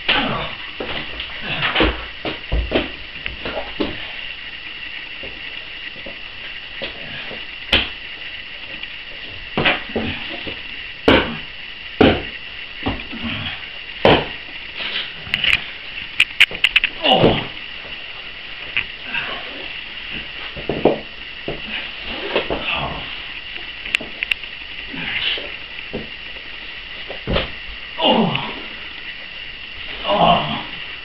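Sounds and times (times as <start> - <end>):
steady high hum: 0.0 - 31.0
bodies thudding on floor: 0.1 - 4.1, 9.2 - 11.4, 12.0 - 15.4, 17.0 - 17.6, 27.0 - 27.6.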